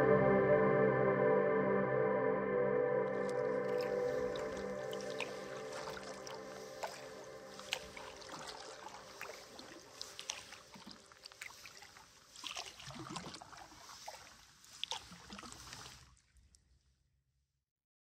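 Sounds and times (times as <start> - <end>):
water trickling and dripping: 3.2 - 16.7
soft paddle splashes: 3.2 - 16.8.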